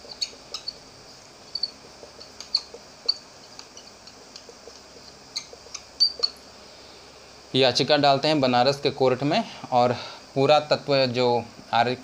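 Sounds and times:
marker squeaking on whiteboard: 0.0 - 6.5.

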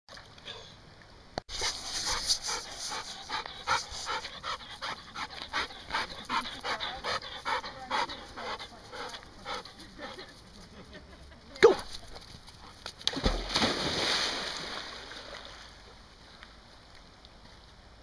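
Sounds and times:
dog panting hard: 1.5 - 10.7.

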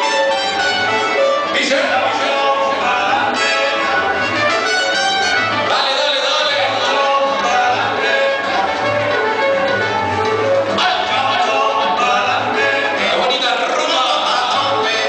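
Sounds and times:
latin dance music with brass: 0.0 - 15.0.

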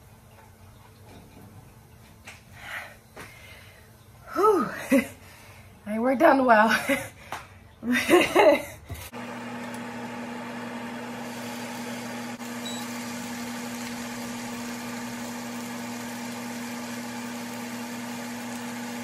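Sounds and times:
appliance motor humming: 9.1 - 19.0.

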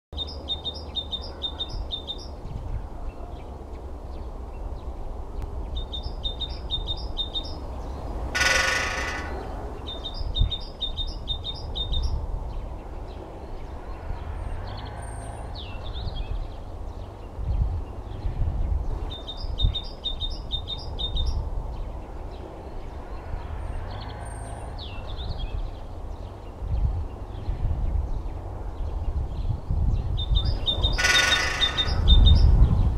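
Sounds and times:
small bird singing: 0.2 - 4.9, 5.6 - 13.8, 14.7 - 23.0, 23.9 - 32.9
woodpecker drumming on pole: 8.4 - 10.0, 30.6 - 32.1.

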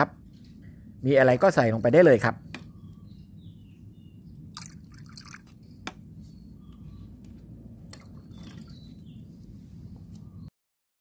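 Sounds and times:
liquid pouring and dripping into jar: 4.5 - 5.6.

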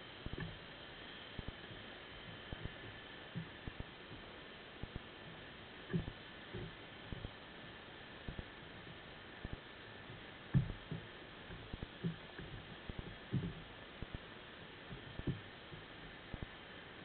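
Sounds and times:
underwater dull thumps: 0.3 - 0.6, 5.9 - 7.4, 9.5 - 14.2, 14.9 - 16.5.

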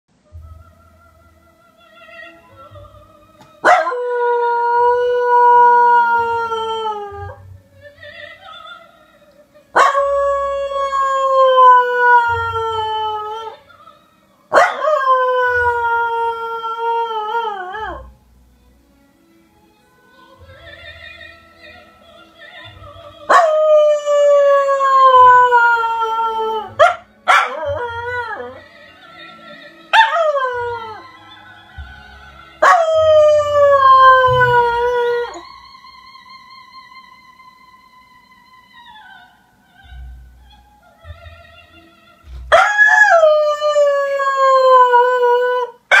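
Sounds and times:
small dog howling: 29.9 - 31.0, 32.6 - 35.4.

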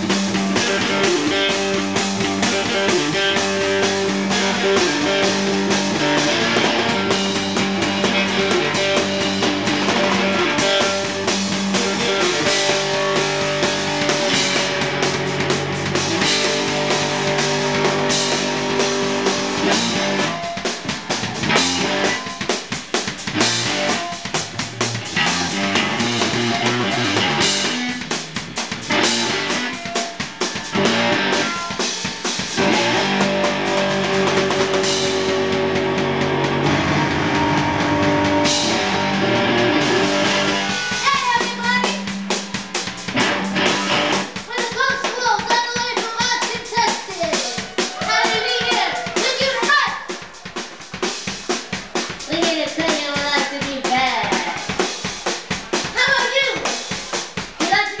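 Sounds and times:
electric guitar: 0.0 - 44.6
drums in fast beat: 0.0 - 58.0.

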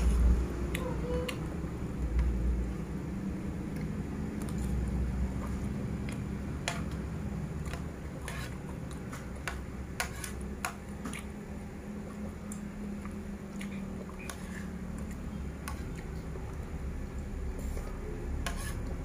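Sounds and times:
steady low hum: 0.0 - 19.0
person chewing food: 3.6 - 19.0
metal spoon scraping plate: 8.2 - 8.6, 10.0 - 10.4, 17.6 - 19.0.

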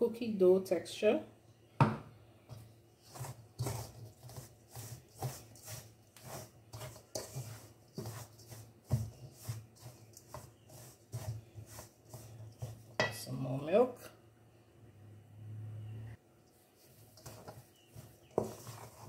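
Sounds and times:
wooden spoon stirring dough in bowl: 2.4 - 13.9, 16.5 - 19.0.

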